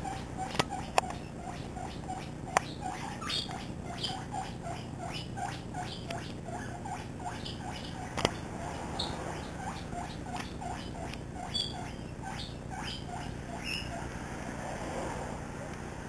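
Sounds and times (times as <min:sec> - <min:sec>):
guinea pig squeaking: 0:00.0 - 0:14.2
sharp clicks: 0:00.5 - 0:01.2, 0:08.1 - 0:08.4.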